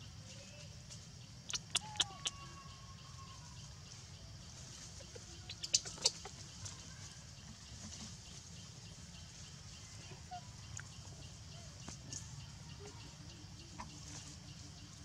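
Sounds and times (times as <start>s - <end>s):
sharp clicks or snaps: 1.5s - 2.4s.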